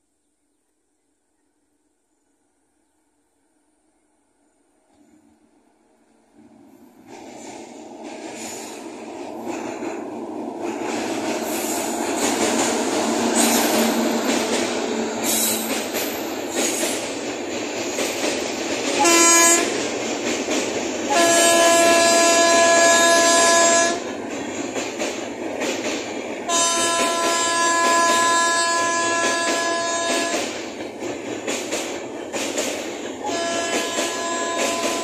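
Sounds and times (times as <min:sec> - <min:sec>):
train wheels clattering: 0:06.4 - 0:35.0
train horn blasts: 0:19.0 - 0:19.8, 0:21.1 - 0:24.1, 0:26.5 - 0:30.6, 0:33.2 - 0:35.0.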